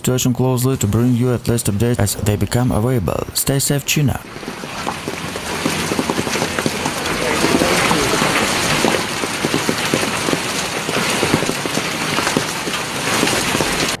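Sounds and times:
hail falling on pavement: 4.2 - 14.0.

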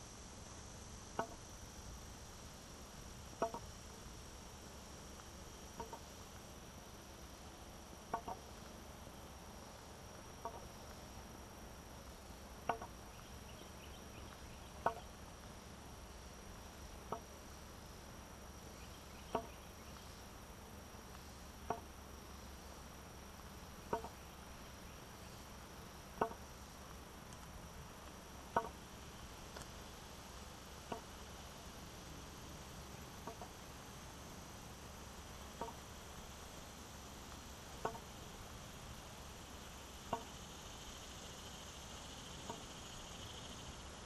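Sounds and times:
steady high whine: 0.0 - 44.0
walking stick tapping on asphalt: 3.4 - 3.6, 12.7 - 12.9, 26.2 - 26.4, 37.3 - 38.0.

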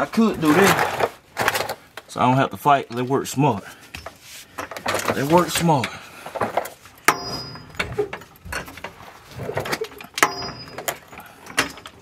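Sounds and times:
sharp metal clinks: 10.2 - 11.2.

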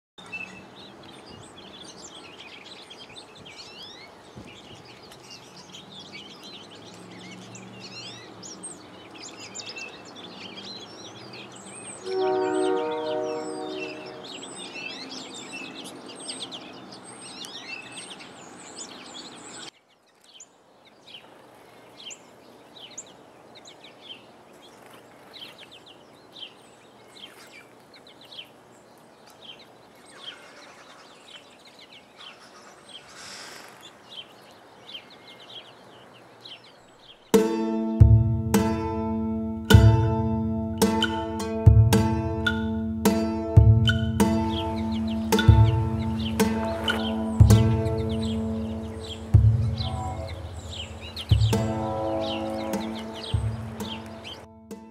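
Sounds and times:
small birds chirping: 0.2 - 37.4, 40.8 - 54.9
distant horn: 11.9 - 14.8, 39.0 - 54.9.

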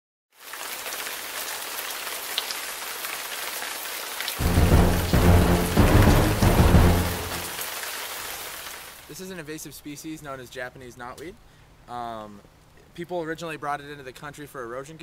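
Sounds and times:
steady rain hiss: 0.4 - 9.9
rolling thunder: 4.4 - 7.6.

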